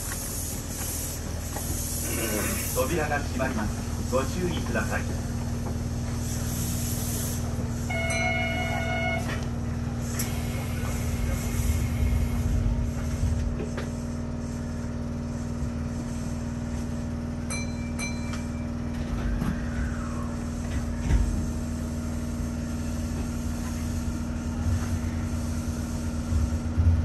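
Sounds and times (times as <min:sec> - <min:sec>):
train rumble and hum: 0:00.0 - 0:27.0
short ringing tones: 0:07.9 - 0:08.8.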